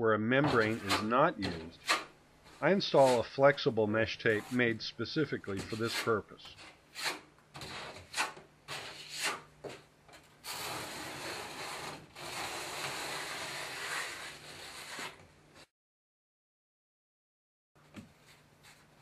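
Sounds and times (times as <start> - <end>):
trowel scraping mortar: 0.4 - 3.4, 4.2 - 4.8, 5.4 - 9.5, 10.4 - 15.2
tape rubbed into wet mortar: 5.6 - 9.5, 10.4 - 15.2.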